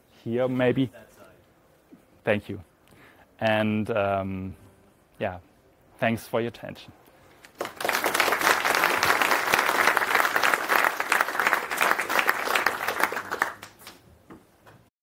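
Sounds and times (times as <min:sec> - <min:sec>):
audience applauding: 0:07.5 - 0:14.0.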